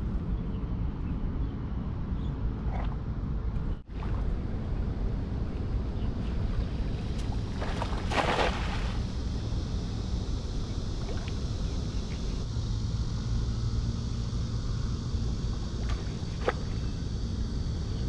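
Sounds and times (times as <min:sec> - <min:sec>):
water splash: 0:07.5 - 0:09.1.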